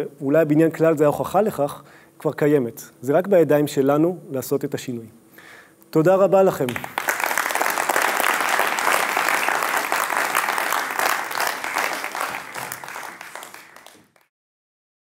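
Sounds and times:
audience applauding: 0:06.7 - 0:14.3.

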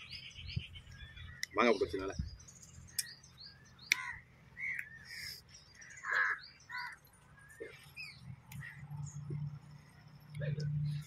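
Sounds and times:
small birds chirping: 0:00.0 - 0:11.0
crows cawing: 0:03.9 - 0:07.7.

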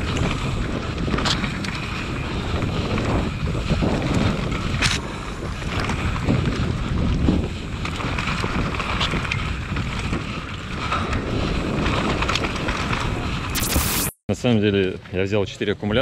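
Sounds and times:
wind buffeting microphone: 0:00.0 - 0:13.6
bike clicks and knocks: 0:00.1 - 0:02.1.

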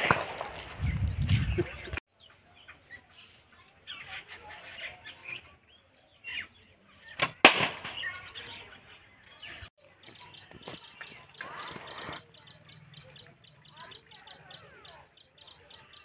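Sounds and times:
arrow striking target: 0:07.2 - 0:08.2.

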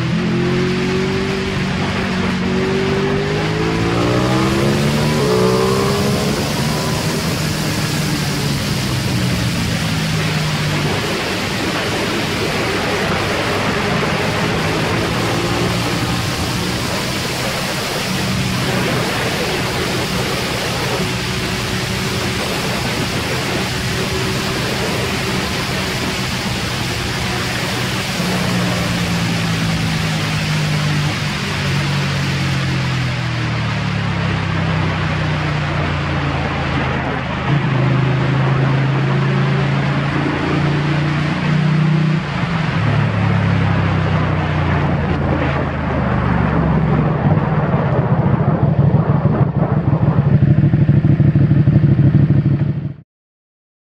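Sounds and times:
loud wind rush: 0:00.0 - 0:52.8
motorcycle engine droning: 0:00.0 - 0:53.0.

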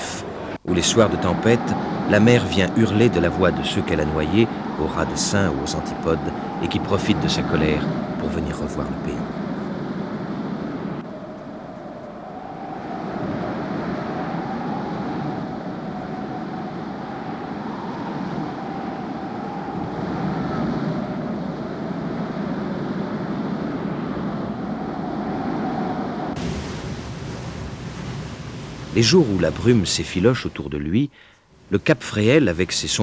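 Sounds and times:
surf breaking against rocks: 0:26.4 - 0:29.7.

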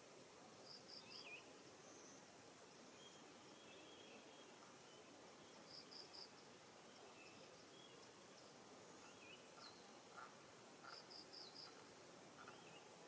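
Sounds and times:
thin insect hum: 0:00.4 - 0:13.0
distant bird chirps: 0:02.9 - 0:13.0.

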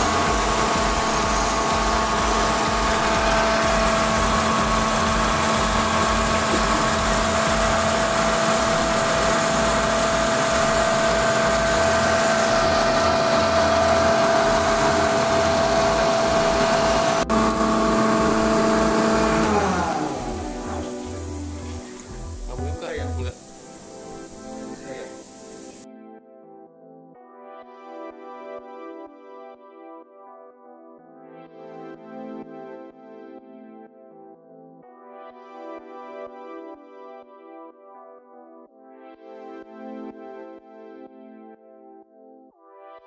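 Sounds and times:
air compressor humming and whining: 0:00.0 - 0:25.8.

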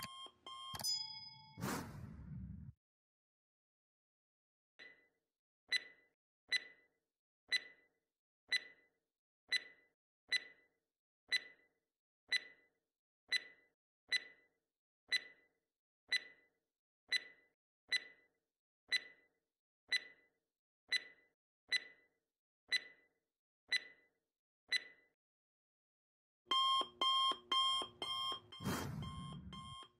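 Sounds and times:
clock ticking: 0:00.0 - 0:00.9, 0:26.5 - 0:29.9.

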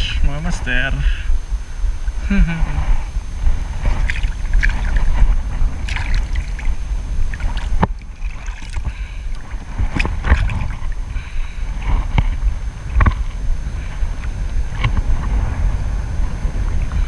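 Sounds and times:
wind rumble on microphone: 0:00.0 - 0:17.0
small waves splashing: 0:03.7 - 0:15.6.

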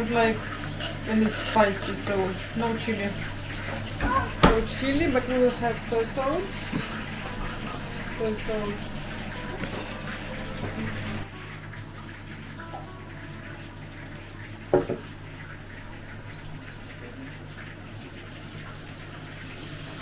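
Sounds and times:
meat sizzling in hot oil: 0:18.5 - 0:20.0.

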